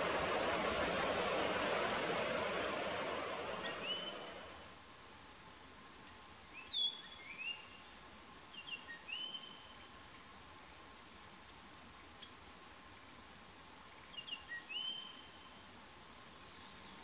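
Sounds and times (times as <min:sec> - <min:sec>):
clear whistled bird notes: 0:00.0 - 0:04.4
high thin insect-like birdsong: 0:00.0 - 0:04.6, 0:05.9 - 0:17.0.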